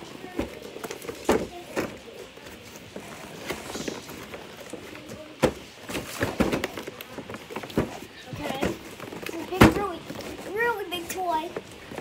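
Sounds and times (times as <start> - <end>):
plastic packaging knocks and clicks: 2.9 - 10.4.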